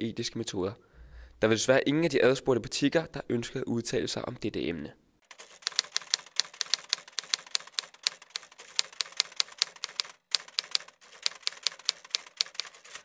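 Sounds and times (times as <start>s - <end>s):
typewriter keys clacking: 5.3s - 13.0s.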